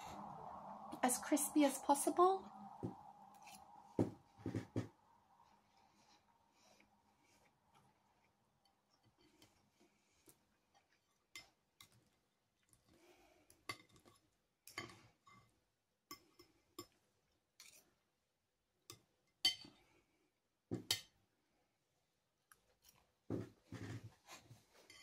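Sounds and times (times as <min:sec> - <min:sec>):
cutlery scraping on ceramic plate: 0:24.8 - 0:25.0.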